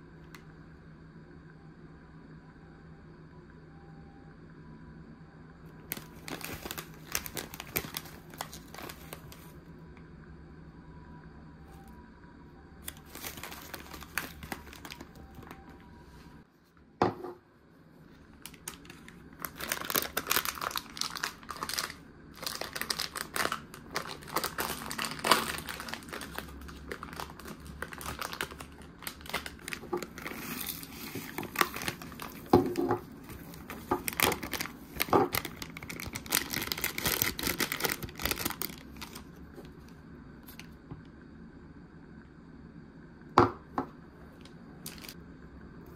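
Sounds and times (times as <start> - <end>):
plastic sachet crinkling: 5.8 - 9.6, 12.8 - 15.6, 18.2 - 39.9, 44.8 - 45.2.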